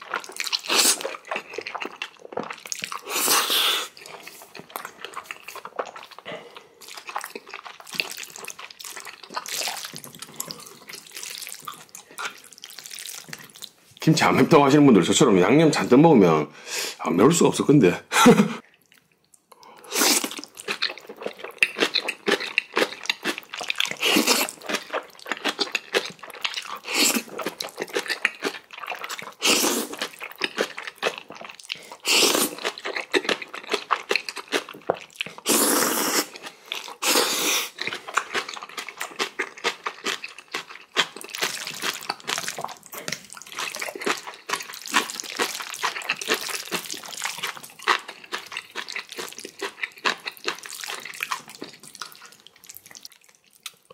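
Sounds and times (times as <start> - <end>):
noodles slurped: 0.0 - 13.8, 19.8 - 53.9
wet chewing: 0.0 - 14.0, 18.6 - 53.9
crunchy bites: 20.2 - 53.9.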